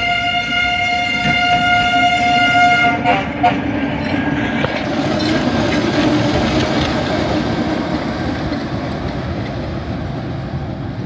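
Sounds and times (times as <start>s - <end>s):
diesel locomotive engine drone: 0.0s - 11.0s.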